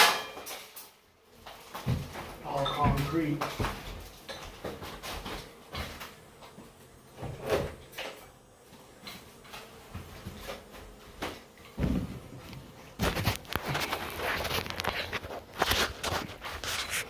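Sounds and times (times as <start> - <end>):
knocks and thumps in a room: 1.5 - 8.2, 8.8 - 13.8.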